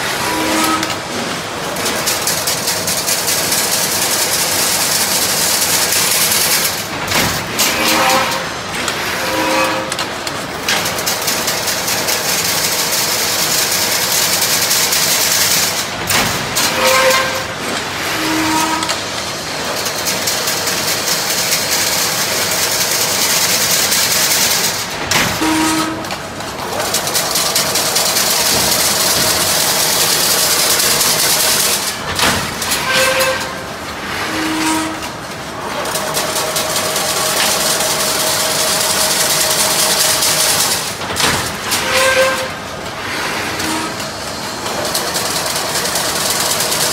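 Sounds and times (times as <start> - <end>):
machine metallic clatter: 0.4 - 46.9.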